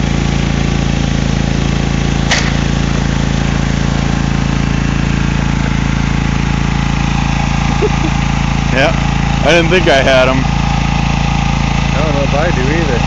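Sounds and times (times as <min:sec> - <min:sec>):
small engine idling: 0:00.0 - 0:13.0
sharp snap of arrow shot: 0:02.2 - 0:03.1.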